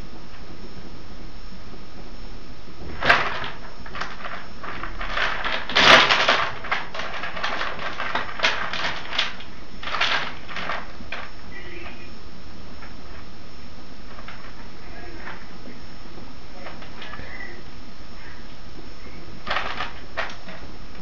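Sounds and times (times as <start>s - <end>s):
rats scratching and scrabbling: 2.8s - 12.1s, 14.1s - 15.8s, 16.5s - 21.0s.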